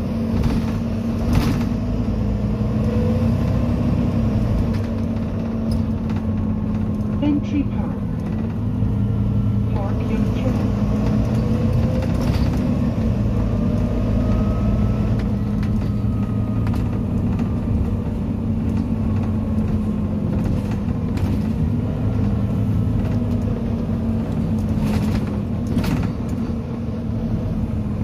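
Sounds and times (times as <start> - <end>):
bus engine drone: 0.0 - 28.0
road rumble: 0.0 - 28.0.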